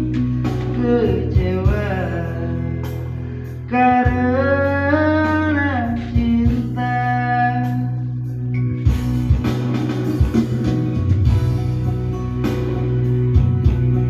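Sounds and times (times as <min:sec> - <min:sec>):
bass line: 0:00.0 - 0:14.0
guitar: 0:00.0 - 0:14.0
drum beat: 0:08.9 - 0:11.8.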